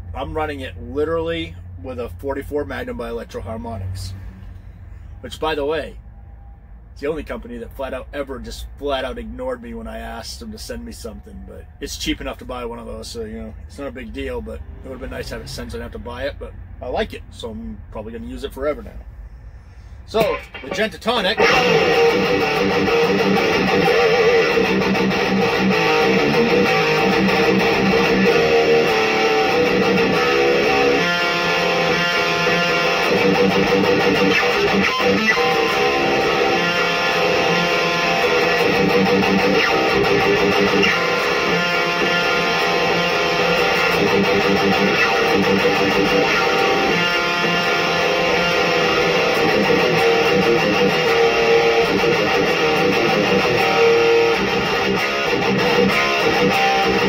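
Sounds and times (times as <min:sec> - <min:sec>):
distorted electric guitar riffing: 0:20.1 - 0:57.0.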